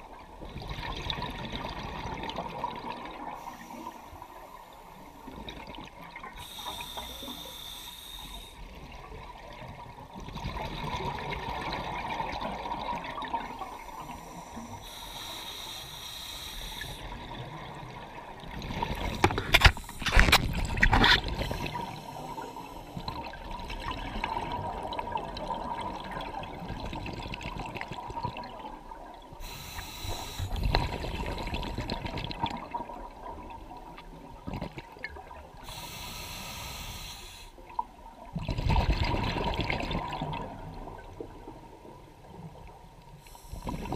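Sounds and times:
regulator hissing inhale: 3.3 - 5.4, 6.4 - 8.7, 13.5 - 17.1, 21.3 - 23.1, 29.4 - 31.1, 35.6 - 37.6, 43.2 - 43.9
exhaled bubbles rushing: 8.8 - 14.3, 17.0 - 22.4, 30.5 - 35.6, 38.3 - 41.7.

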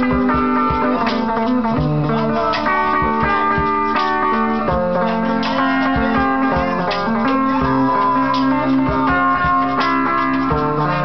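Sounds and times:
guitars playing rhythmic tune: 0.0 - 11.0.

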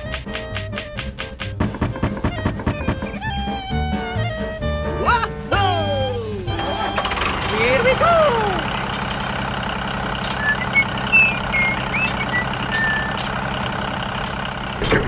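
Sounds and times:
tractor engine running: 0.0 - 15.0
short high chirps: 10.3 - 13.3.

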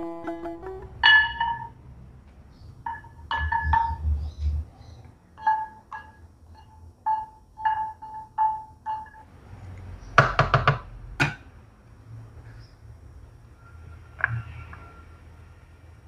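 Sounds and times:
spatula knocking on wok: 1.0 - 1.7, 2.8 - 4.1, 5.4 - 9.2, 10.2 - 11.5.

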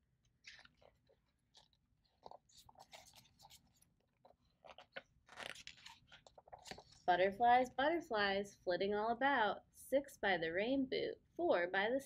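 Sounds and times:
book pages turning: 0.3 - 7.1.

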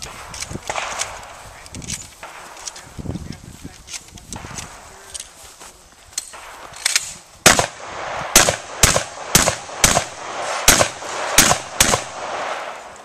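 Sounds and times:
rapid gunshots: 6.4 - 12.9.

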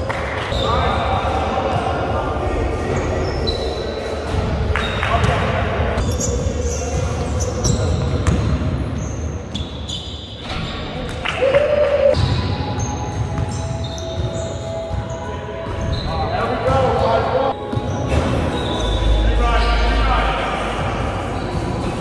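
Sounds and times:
basketball bouncing: 7.7 - 8.7.

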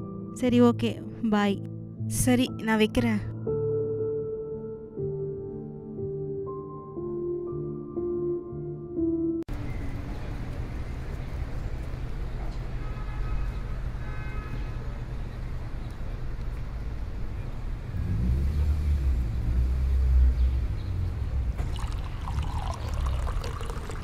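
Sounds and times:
road traffic rumble: 9.5 - 24.0
cups and utensils clinking: 21.7 - 24.0.

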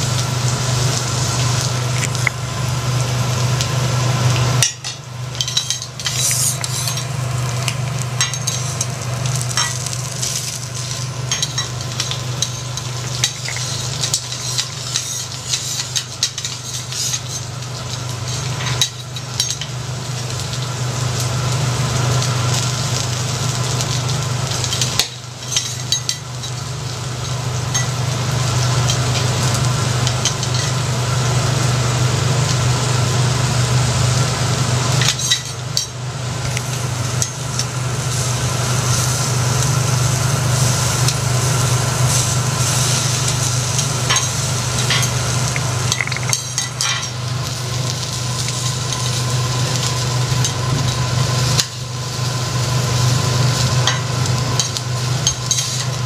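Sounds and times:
prawns sizzling on griddle: 0.0 - 56.0
metal spatulas scraping griddle: 5.4 - 7.1, 13.4 - 17.5
low hum: 41.4 - 51.1.

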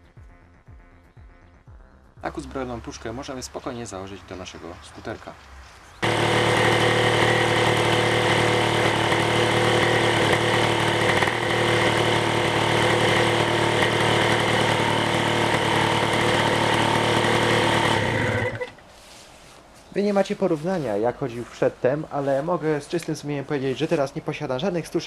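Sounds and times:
two-stroke scooter engine idling: 6.0 - 18.7.

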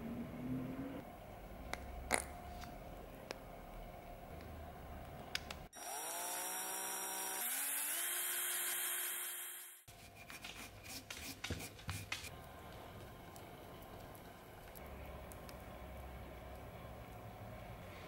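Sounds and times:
power drill spinning: 5.7 - 9.9.

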